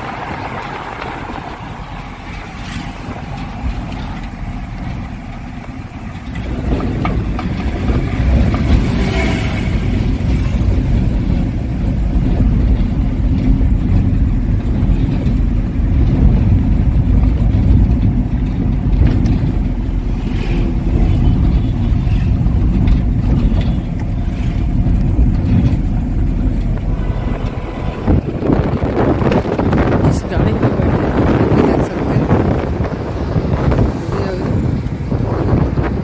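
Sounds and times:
vehicle engine and road noise: 0.0s - 36.0s.

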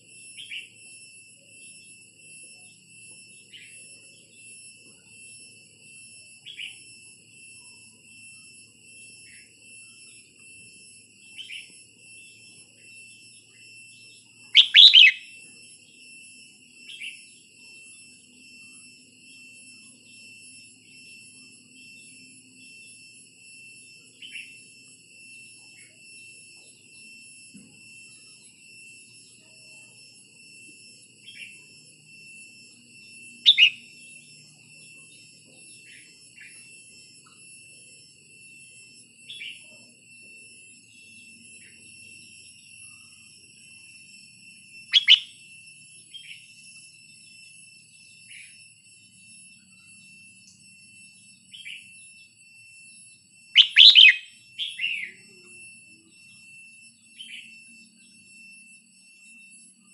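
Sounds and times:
high-pitched ringing drone: 0.0s - 59.9s
bird giving sharp calls: 14.6s - 15.2s, 53.6s - 54.2s.

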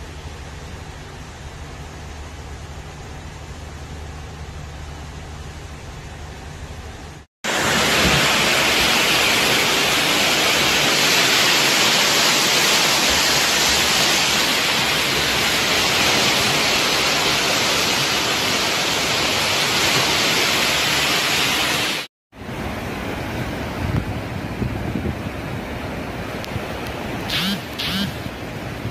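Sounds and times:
rushing water hiss: 7.5s - 28.9s.

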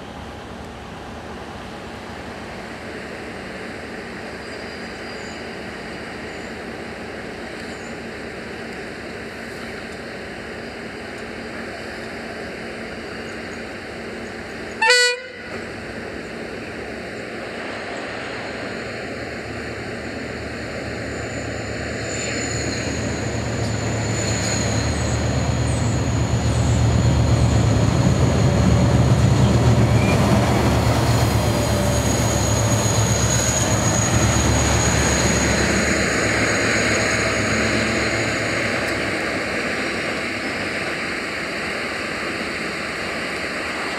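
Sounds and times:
diesel locomotive engine rumble: 0.0s - 43.9s
locomotive horn toot: 14.8s - 15.6s
high wheel squeals: 21.1s - 28.7s, 31.5s - 38.9s.

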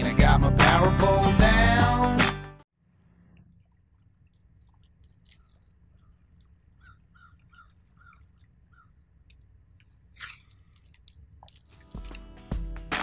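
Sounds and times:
birds calling: 5.1s - 10.8s.

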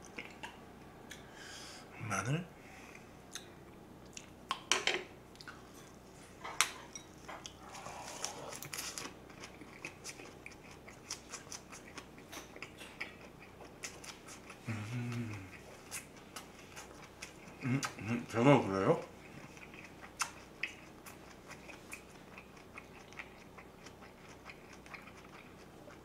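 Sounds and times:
wet crunchy chewing: 7.5s - 18.3s, 19.0s - 26.0s
humming through closed lips: 7.5s - 18.4s.

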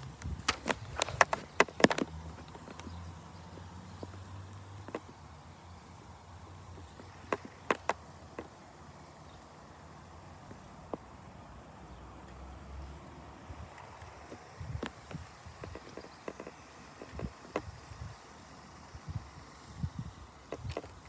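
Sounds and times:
insects chirring: 0.0s - 21.0s
sharp clicks: 0.1s - 5.2s, 6.8s - 8.6s, 13.8s - 17.7s.

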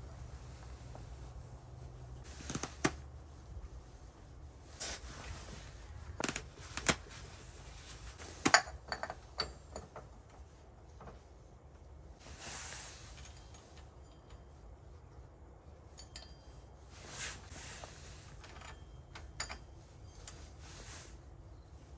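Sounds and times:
short hiss: 4.8s - 5.4s
metal parts clicking and clinking: 8.3s - 10.3s, 17.4s - 20.9s.

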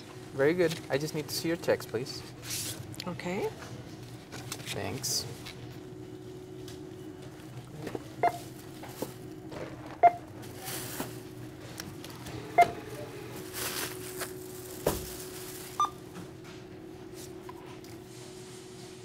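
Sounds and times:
steady hum: 0.0s - 19.0s
barcode scanner beeps: 8.2s - 8.4s, 10.0s - 10.2s, 12.6s - 12.8s, 15.8s - 16.0s
plastic bags rustling: 10.4s - 16.2s.

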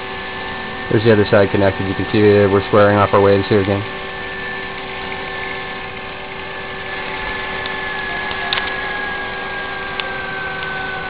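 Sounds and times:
generator whirring with high whine: 0.0s - 11.0s
small click: 7.6s - 8.8s.

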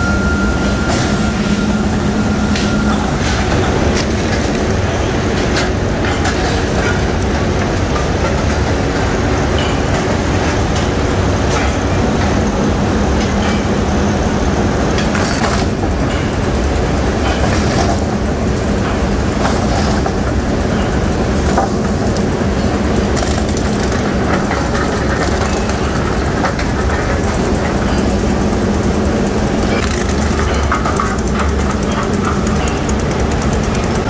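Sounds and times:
rolling mill rumble and drone: 0.0s - 34.0s
metallic clanks and rattles: 17.2s - 34.0s.

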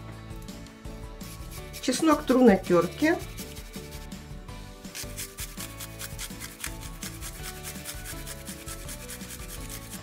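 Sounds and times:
garlic rasping on metal grater: 1.5s - 4.0s, 4.9s - 10.0s.

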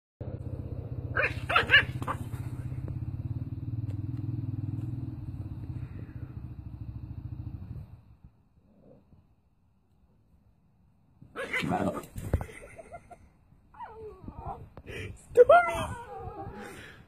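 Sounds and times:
low pulsing rumble: 0.2s - 8.6s
puppy yapping: 1.1s - 2.3s.

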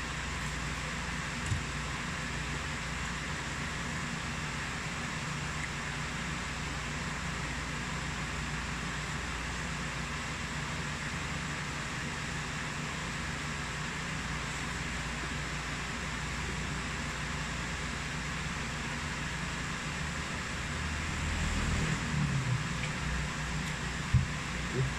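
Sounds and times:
low hum: 20.2s - 24.9s.

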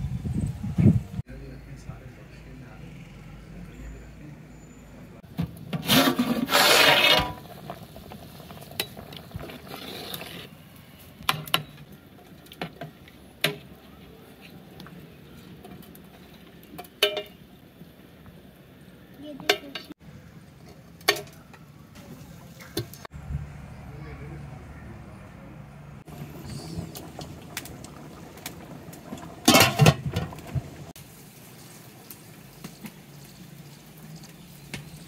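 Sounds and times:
utensil scraping: 5.8s - 7.5s.

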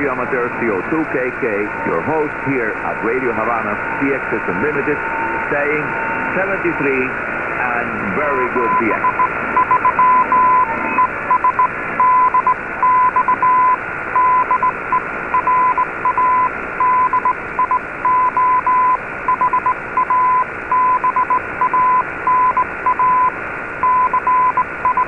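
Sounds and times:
static hiss: 0.0s - 25.0s
morse code beeps: 8.6s - 25.0s.

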